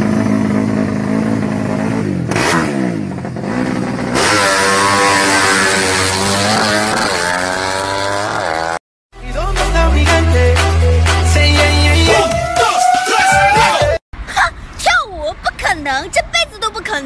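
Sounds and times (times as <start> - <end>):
motorcycle engine revving: 0.0 - 8.8.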